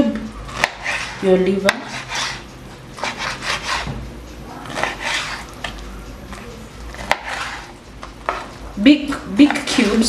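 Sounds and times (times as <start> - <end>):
knife scraping on cutting board: 0.5 - 4.0, 4.6 - 5.8, 6.9 - 8.6.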